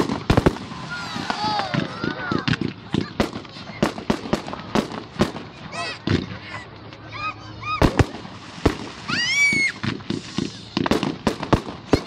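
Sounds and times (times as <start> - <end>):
fireworks banging and cracking: 0.0 - 7.0, 7.8 - 12.0
high-pitched firework squeals: 0.4 - 4.0, 7.2 - 11.1.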